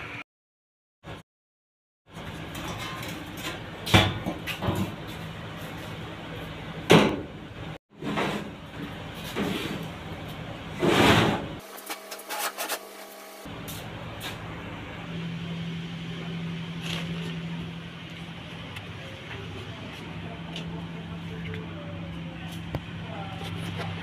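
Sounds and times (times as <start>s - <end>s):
steady low hum: 13.3s - 24.0s.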